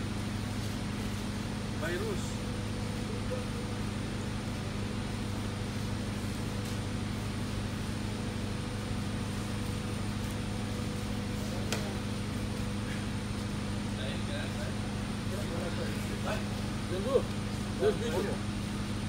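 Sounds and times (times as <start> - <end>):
low mechanical hum: 0.0 - 19.0.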